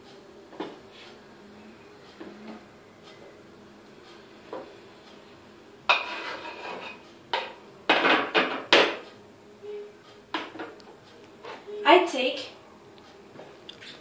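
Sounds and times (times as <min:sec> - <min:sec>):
knife scraping wooden board: 0:06.0 - 0:07.0.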